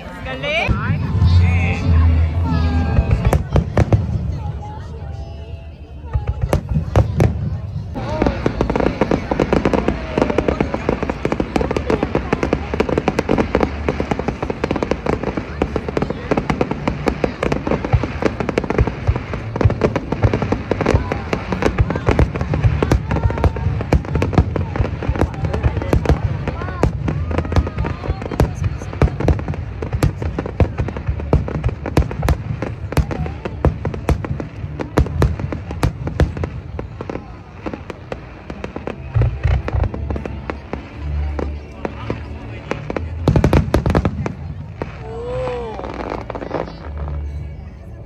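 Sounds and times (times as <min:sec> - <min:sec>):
low rumble: 0:00.0 - 0:05.1
fireworks crackling and popping: 0:00.0 - 0:48.0
deep firework booms: 0:06.1 - 0:40.4.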